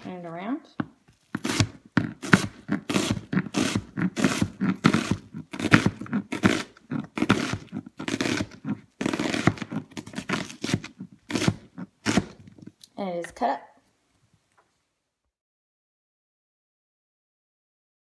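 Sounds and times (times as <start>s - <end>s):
knife chopping onion on board: 0.8s - 12.4s.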